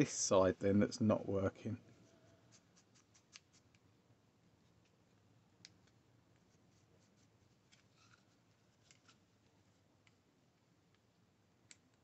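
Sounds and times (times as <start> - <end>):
light rubbing of parts: 4.6 - 10.1.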